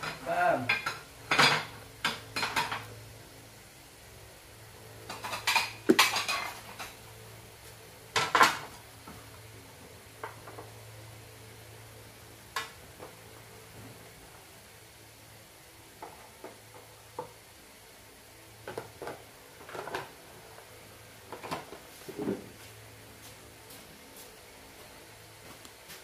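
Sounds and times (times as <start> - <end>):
dishes and utensils clattering: 0.1 - 2.9, 5.1 - 7.0.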